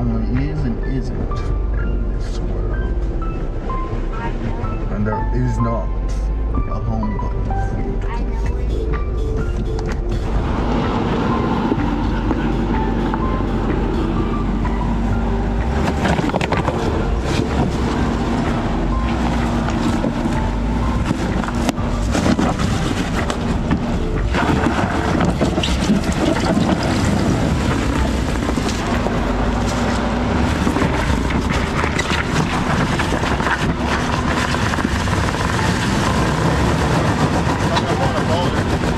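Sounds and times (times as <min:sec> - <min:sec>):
car engine running: 0:00.0 - 0:38.9
suspension knocks and clatters: 0:09.4 - 0:38.9.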